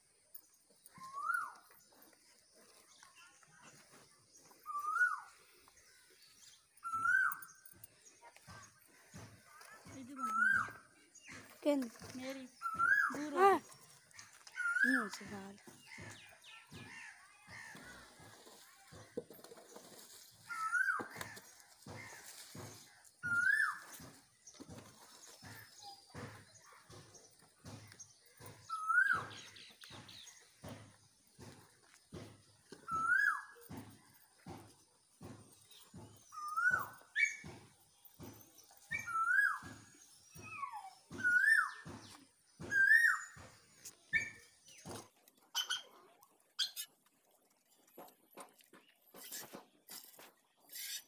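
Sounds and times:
faint bird chirps: 4.4s - 8.2s
short clicks and scuffs: 47.9s - 51.0s.

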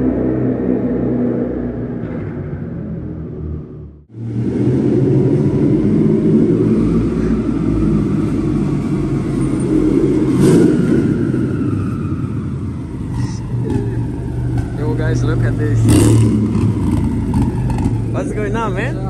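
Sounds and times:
car engine idling: 12.8s - 19.0s.

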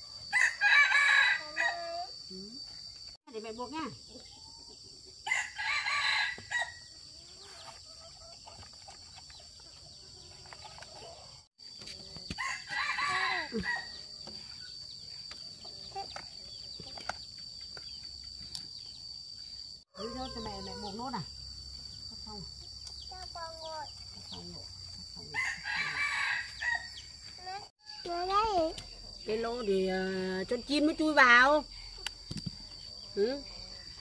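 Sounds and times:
rooster crowing: 0.3s - 2.0s, 5.2s - 6.8s, 12.4s - 14.0s, 19.9s - 21.2s, 25.3s - 27.0s.

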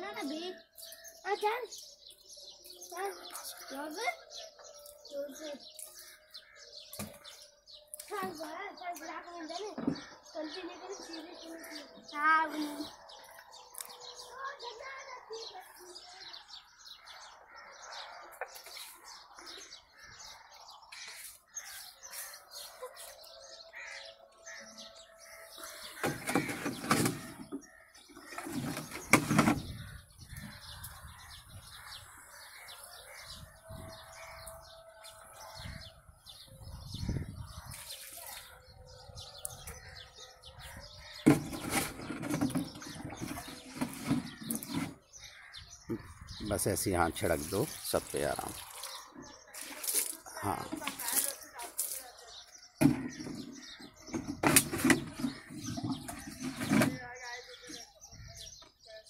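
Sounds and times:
birds chirping: 0.0s - 59.0s.

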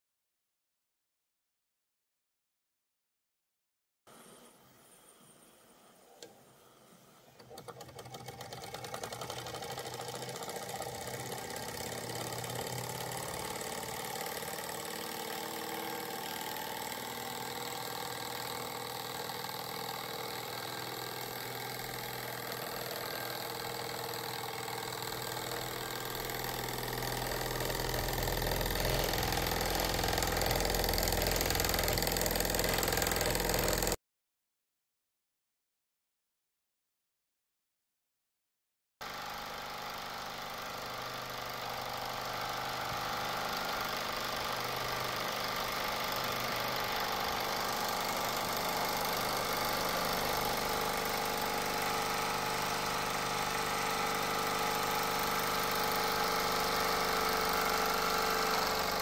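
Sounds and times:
model steam engine chuffing: 7.4s - 34.0s, 39.1s - 59.0s.

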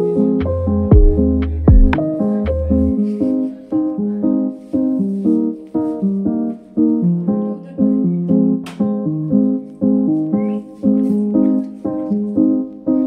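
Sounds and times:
keyboard melody: 0.0s - 13.0s.

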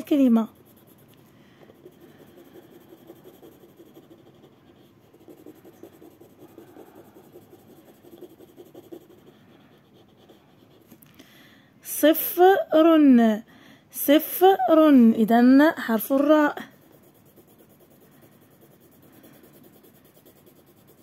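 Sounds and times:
pencil scratching on paper: 0.0s - 11.0s, 15.9s - 21.0s.

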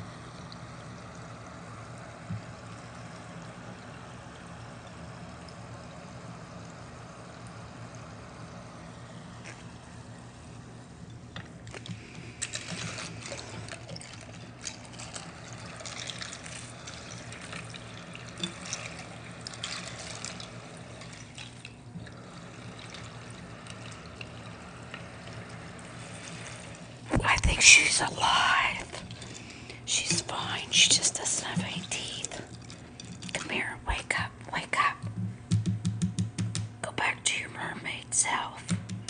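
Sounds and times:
low steady hum: 0.0s - 39.0s
water trickling and splashing: 0.3s - 8.8s, 10.5s - 33.6s.

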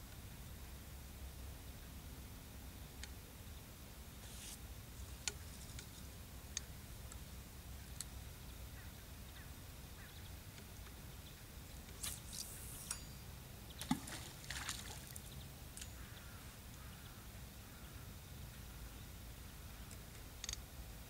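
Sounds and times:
reel clicks: 11.7s - 16.4s, 19.9s - 20.7s
fishing rod swish and line: 11.8s - 15.3s
feeder plopping into water: 13.8s - 15.4s.

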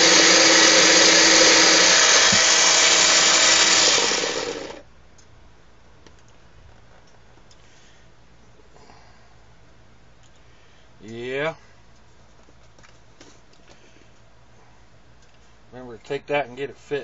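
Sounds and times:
food chopper motor running: 0.0s - 4.8s.

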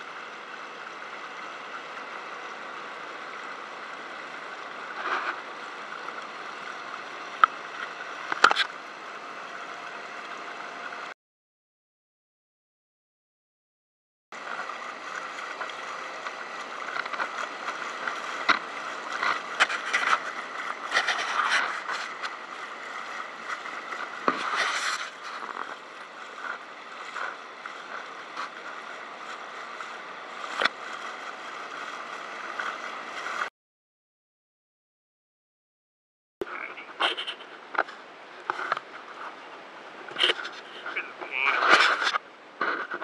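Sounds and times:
sharp splashes and knocks: 14.4s - 33.5s
water splashing against a kayak: 14.4s - 33.5s.

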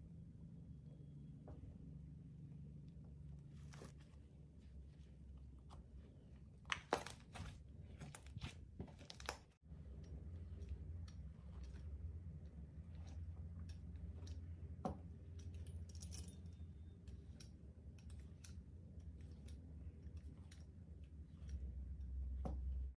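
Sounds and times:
soft sticky clicks: 9.1s - 15.8s
metal blade scoring slime: 16.8s - 22.5s.

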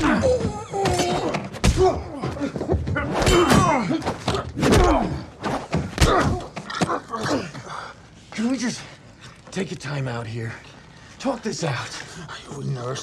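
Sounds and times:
grunts of effort: 6.0s - 8.0s.

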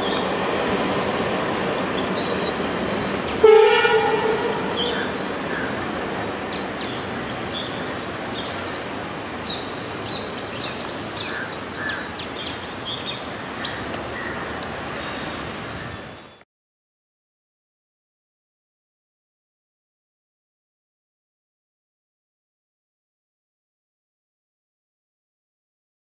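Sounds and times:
train rumbling: 0.0s - 16.0s
birds chirping: 0.0s - 16.4s.

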